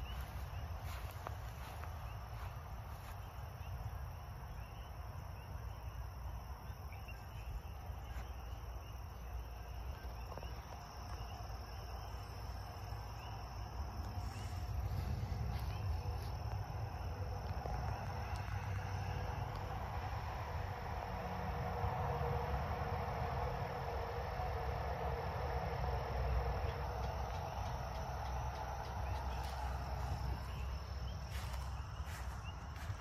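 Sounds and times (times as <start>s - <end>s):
insects droning: 0.0s - 33.0s
wind rumble on microphone: 13.6s - 33.0s.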